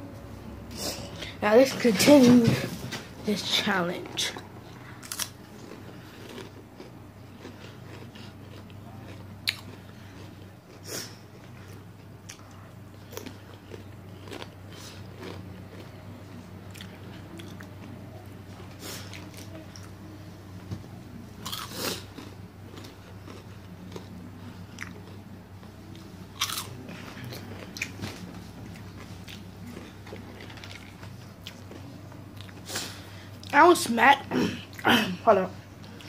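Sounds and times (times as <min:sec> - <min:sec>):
steady low hum: 0:00.0 - 0:36.0
crunching and chewing snacks: 0:04.2 - 0:20.0, 0:21.4 - 0:33.6.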